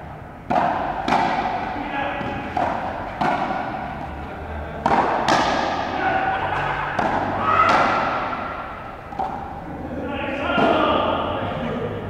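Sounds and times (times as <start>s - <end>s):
ball cracking off rackets: 0.4s - 4.2s, 4.8s - 9.6s
ball slamming into concrete wall: 4.8s - 6.0s, 6.9s - 9.5s.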